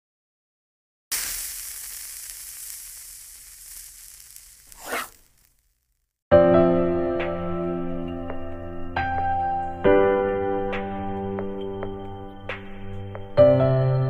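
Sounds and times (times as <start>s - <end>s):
sizzling hiss: 1.1s - 6.0s
short swoosh: 4.7s - 5.3s
music: 6.3s - 14.0s.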